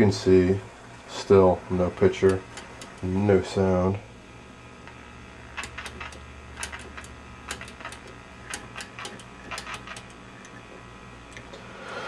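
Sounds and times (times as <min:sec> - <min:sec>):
steady low hum: 0:00.0 - 0:12.0
tv channel selector clicking: 0:02.2 - 0:03.0, 0:05.6 - 0:10.2.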